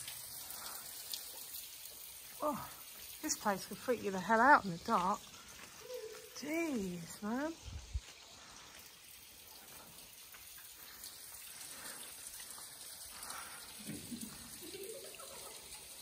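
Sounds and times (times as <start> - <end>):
water dripping and trickling: 0.0 - 16.0.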